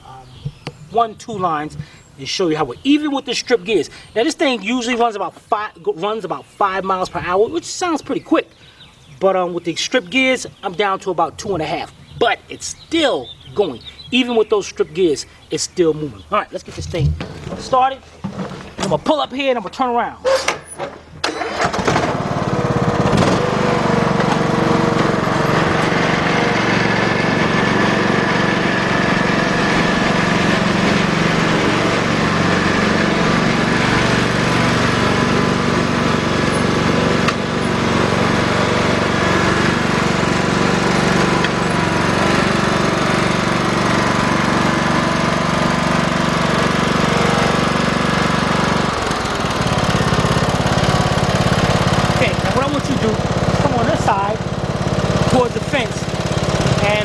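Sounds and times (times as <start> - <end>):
riding mower engine cutting grass: 20.4 - 57.0.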